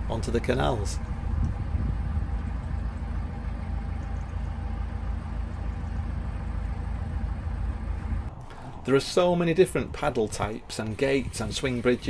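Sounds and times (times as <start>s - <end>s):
wind noise on microphone: 0.0s - 3.2s
boat engine rumbling: 0.0s - 12.0s.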